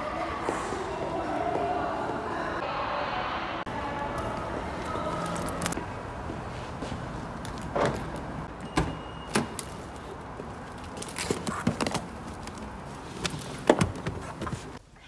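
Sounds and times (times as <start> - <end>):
footsteps: 4.1 - 8.5.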